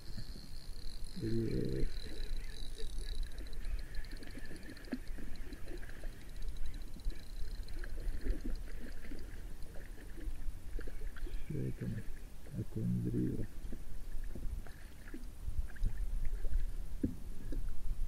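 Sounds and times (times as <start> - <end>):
fishing reel ticking: 0.0 - 9.8.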